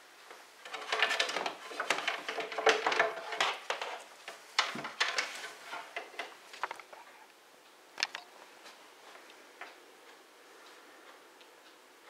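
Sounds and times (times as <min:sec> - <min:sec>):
small hard objects clicking and rattling: 0:00.6 - 0:07.0.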